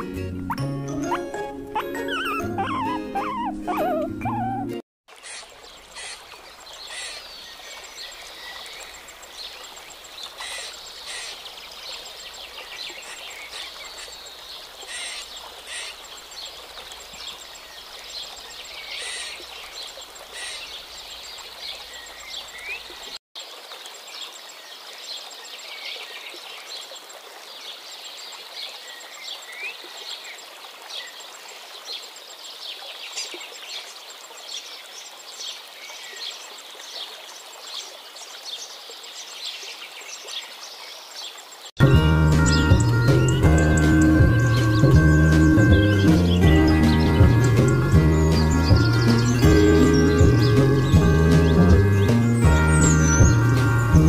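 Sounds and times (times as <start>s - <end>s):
small birds chirping and singing: 0.0s - 4.8s, 31.0s - 54.0s.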